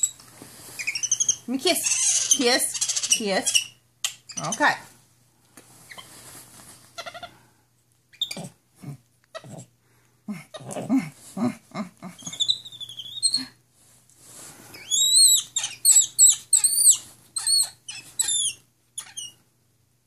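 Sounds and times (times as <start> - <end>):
bedsheets rustling: 5.7 - 6.9.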